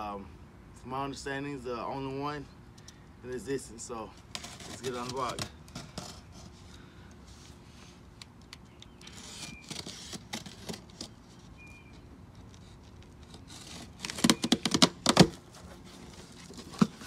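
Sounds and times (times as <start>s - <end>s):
packing tape scratching and scraping: 4.2s - 7.6s, 8.2s - 17.0s
cardboard tape ripping: 4.3s - 6.6s, 9.0s - 11.4s, 12.4s - 17.0s.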